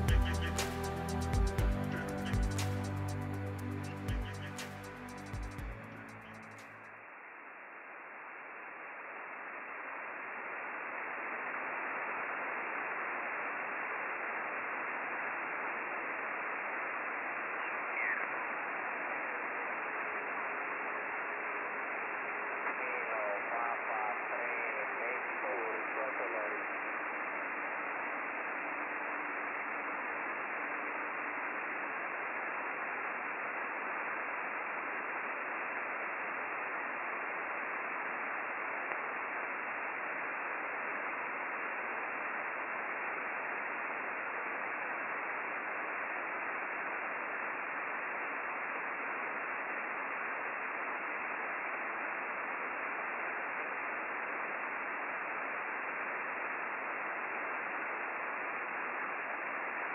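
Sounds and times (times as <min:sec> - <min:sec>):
radio receiver hiss: 0:00.0 - 0:59.9.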